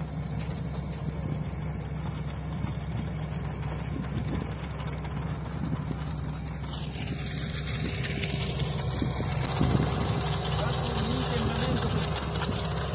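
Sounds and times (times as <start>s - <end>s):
vehicle engine humming: 0.0s - 12.9s.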